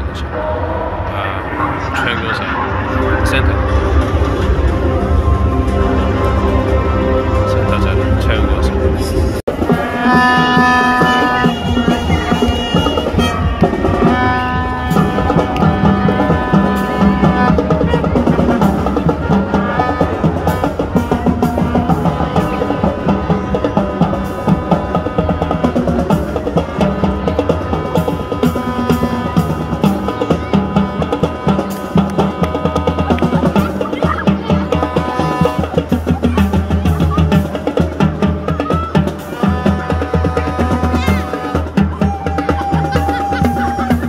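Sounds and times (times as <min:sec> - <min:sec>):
horns holding chords: 0:00.0 - 0:44.0
snare and bass drums: 0:09.5 - 0:44.0.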